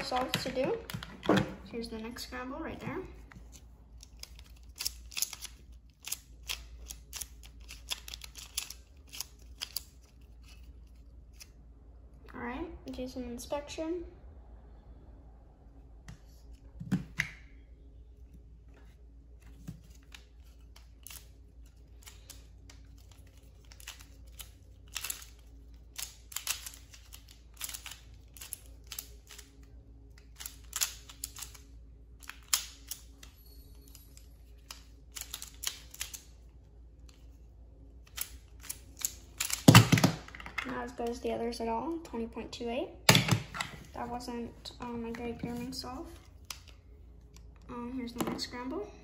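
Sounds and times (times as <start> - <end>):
plastic puzzle clicking: 3.5 - 10.7, 20.0 - 29.6, 30.2 - 31.6, 34.5 - 36.3, 38.0 - 40.7.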